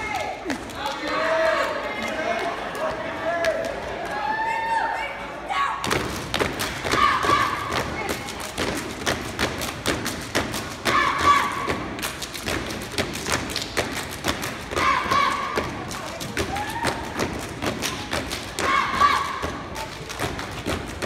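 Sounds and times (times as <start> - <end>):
people clapping rhythmically: 0.0 - 4.4, 5.8 - 21.0.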